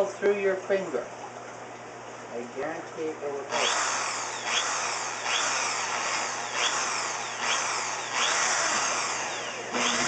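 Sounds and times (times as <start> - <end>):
electric drill whining: 3.5 - 10.0.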